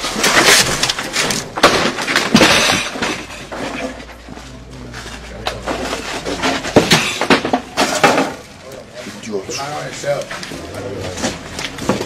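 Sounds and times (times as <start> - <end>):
objects smashing: 0.0 - 4.2, 5.6 - 8.4
clattering: 0.0 - 4.3, 5.5 - 8.4.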